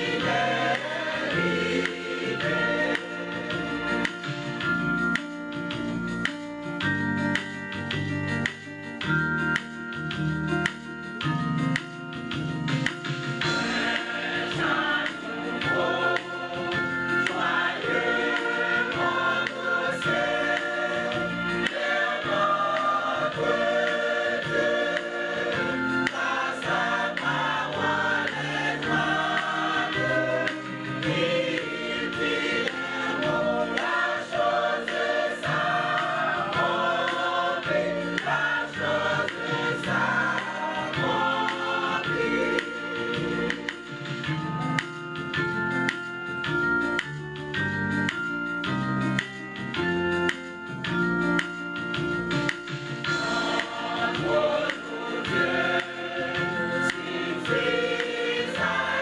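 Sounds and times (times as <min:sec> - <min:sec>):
choir singing gospel: 0:00.0 - 0:05.2, 0:13.4 - 0:44.4, 0:53.0 - 0:59.0.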